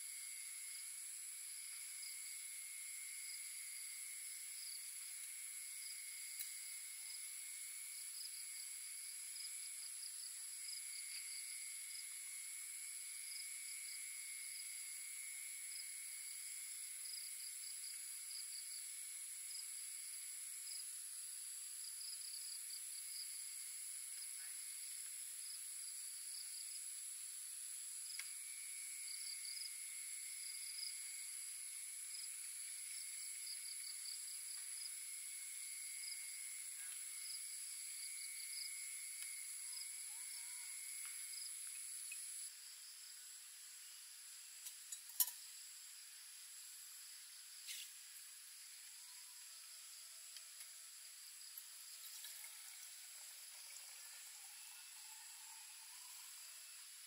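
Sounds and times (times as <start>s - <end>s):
insects trilling: 0.0s - 57.0s
pulsing insect chirps: 21.9s - 42.9s, 51.1s - 57.0s.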